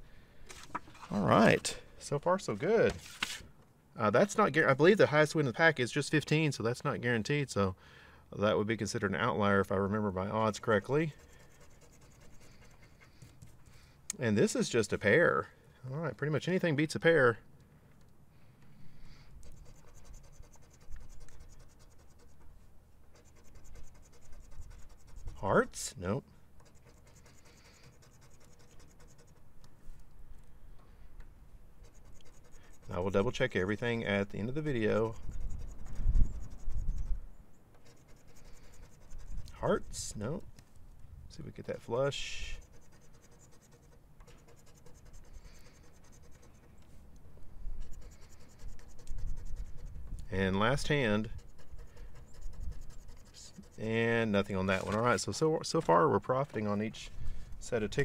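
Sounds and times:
scratching a lottery ticket: 10.4s - 13.8s, 19.4s - 25.9s, 26.6s - 29.5s, 31.8s - 37.2s, 37.8s - 40.4s, 41.5s - 46.8s, 47.8s - 55.3s.

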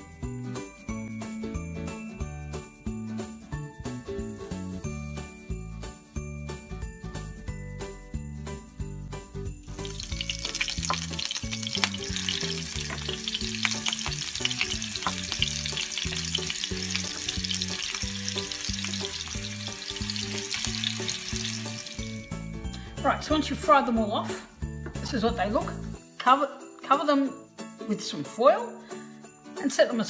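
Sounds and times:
background music with bass: 0.0s - 26.0s
meatballs sizzling in oil: 9.6s - 22.6s.

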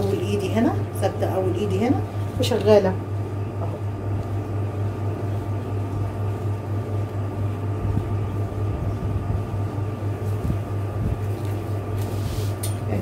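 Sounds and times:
low electrical hum: 0.0s - 13.0s
fabric being handled: 10.2s - 12.6s.

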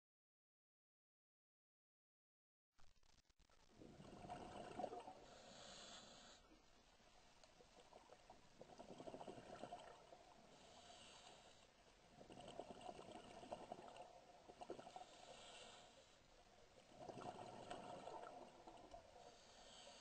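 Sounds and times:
regulator hiss on inhale: 5.2s - 6.6s, 10.4s - 11.8s, 14.8s - 16.4s, 19.1s - 20.0s.

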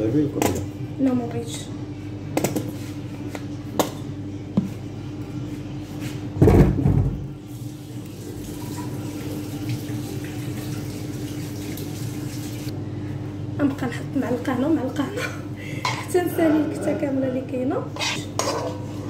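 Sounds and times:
steady low hum: 12.7s - 19.0s.

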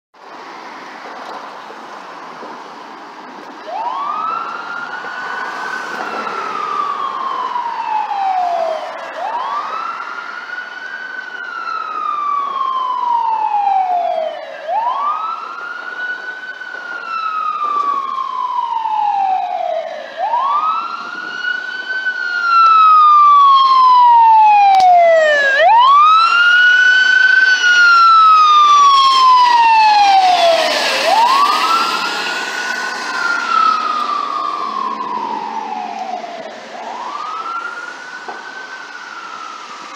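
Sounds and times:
fire truck siren wailing: 3.3s - 39.9s.

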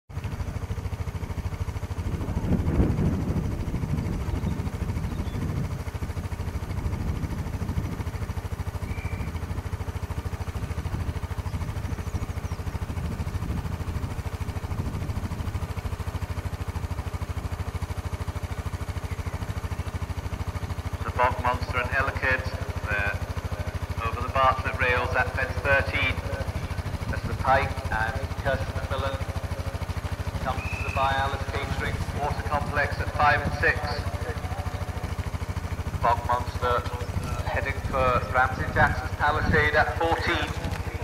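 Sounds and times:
wind rumbling on microphone: 1.1s - 16.6s, 26.1s - 41.0s.

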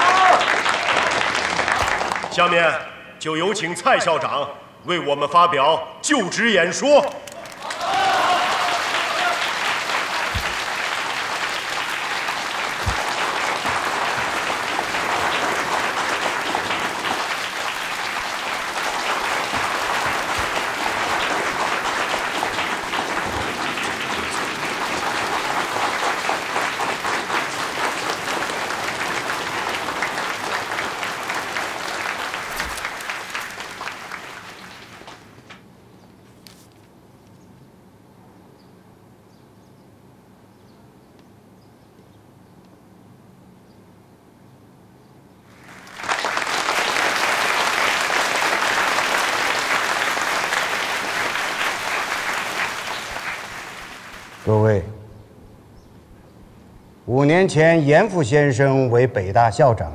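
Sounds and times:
audience applauding: 0.0s - 2.6s, 7.0s - 35.6s, 45.5s - 54.7s.

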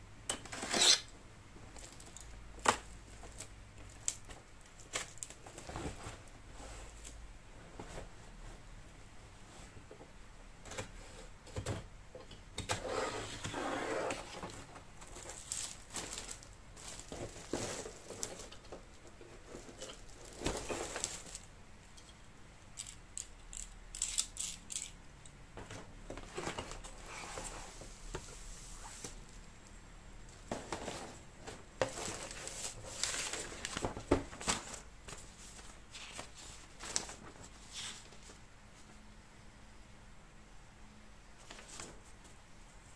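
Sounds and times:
packaging rustling and crinkling: 1.7s - 7.2s, 13.3s - 21.5s, 30.4s - 38.4s.

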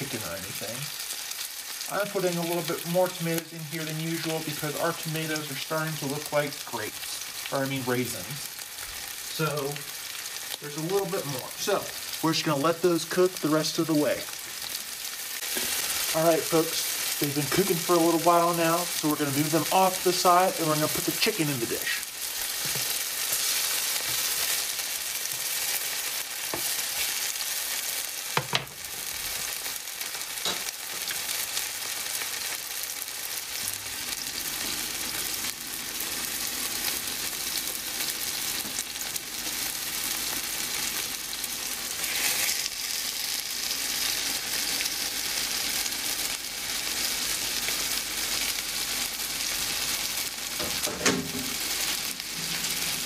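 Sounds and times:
food sizzling in a frying pan: 0.0s - 53.0s.

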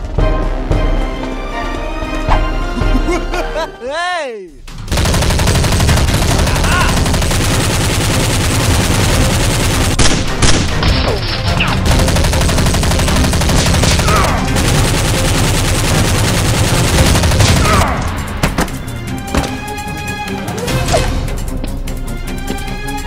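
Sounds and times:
rapid automatic gunfire: 4.9s - 10.8s, 11.8s - 17.9s.

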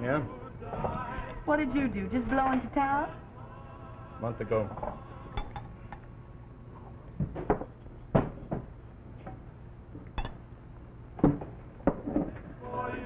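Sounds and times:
low steady hum: 0.0s - 13.0s
glasses and bottles clinking: 5.4s - 5.7s.

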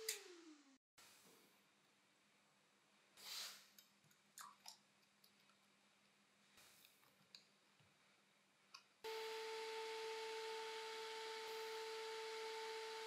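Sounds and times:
steady hum: 9.1s - 13.0s.

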